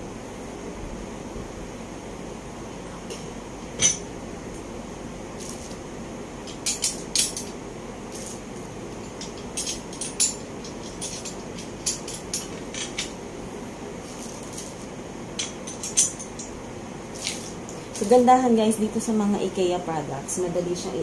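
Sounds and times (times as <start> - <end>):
metal chair frame clinking: 3.8 - 4.1, 6.4 - 7.6, 9.0 - 13.2, 15.4 - 16.5.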